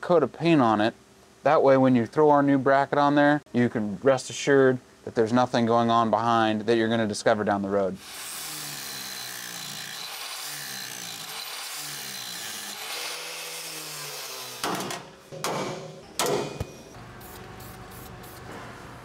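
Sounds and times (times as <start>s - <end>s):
angle grinder grinding metal: 8.0s - 15.1s.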